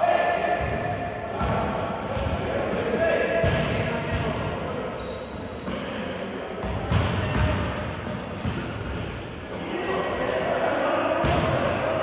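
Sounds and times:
gym background noise: 0.0s - 12.0s.

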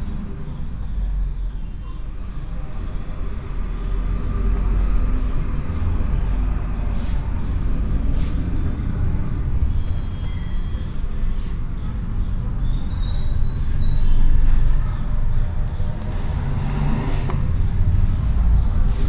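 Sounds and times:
cloth wiping a whiteboard: 0.0s - 12.9s.

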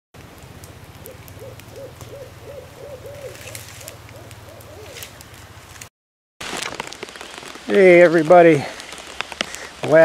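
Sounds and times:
wood fire crackling: 0.2s - 10.0s
short rise-and-fall calls: 1.0s - 5.2s.

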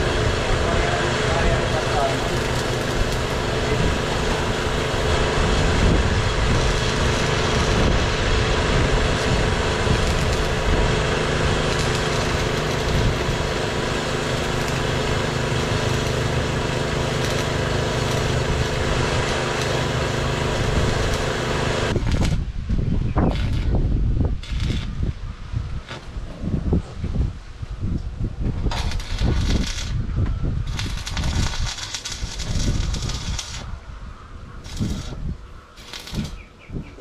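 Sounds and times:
small engine running steadily: 0.0s - 22.3s.

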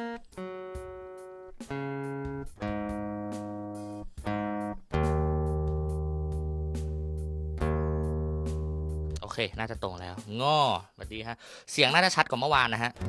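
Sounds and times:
acoustic guitar strings plucked: 0.0s - 9.3s.

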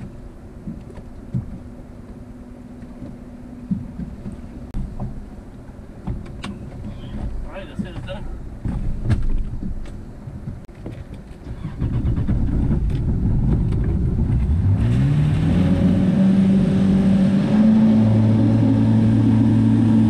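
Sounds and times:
boat engine throttling up: 11.3s - 20.0s.

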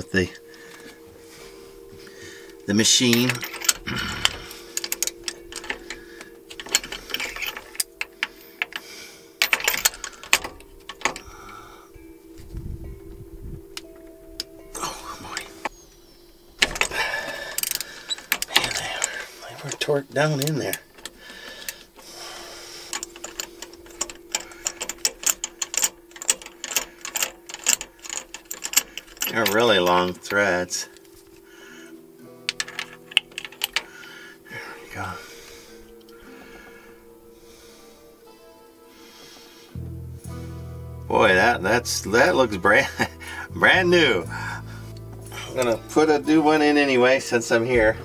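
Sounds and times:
steady hum: 0.0s - 48.0s
tool clinking against metal: 2.4s - 11.7s, 16.6s - 31.5s, 32.4s - 34.1s
socket ratchet clicking: 3.0s - 11.6s, 16.6s - 30.2s, 32.4s - 34.1s.

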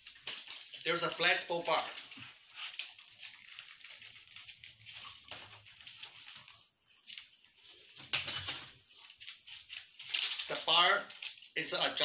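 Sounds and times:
soft rustles: 8.8s - 11.6s.

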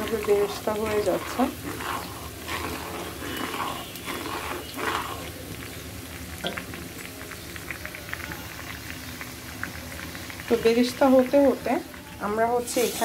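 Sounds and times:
spatula stirring: 0.0s - 6.2s, 9.6s - 13.0s
onions sizzling in hot oil: 0.0s - 13.0s.

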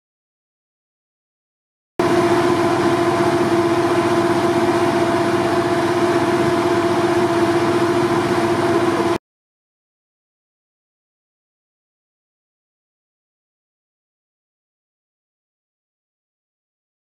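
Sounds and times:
engine running with high whine: 2.0s - 9.2s.

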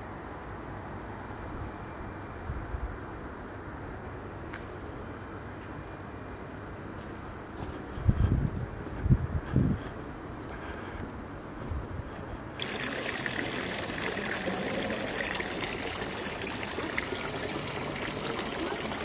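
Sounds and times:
fountain water splashing: 12.6s - 19.0s.

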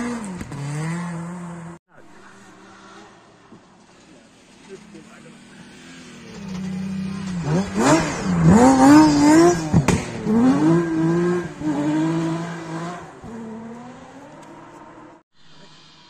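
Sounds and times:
rally car engine revving: 0.0s - 3.0s, 4.5s - 15.2s.

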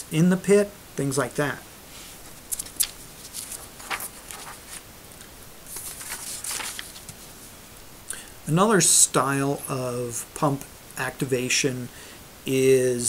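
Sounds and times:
paper rustling and sliding: 2.0s - 7.5s.

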